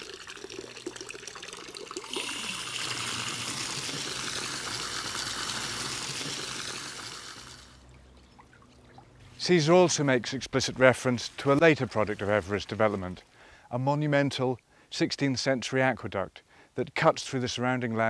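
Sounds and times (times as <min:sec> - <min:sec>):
water splashing into fountain basin: 0:00.0 - 0:09.4.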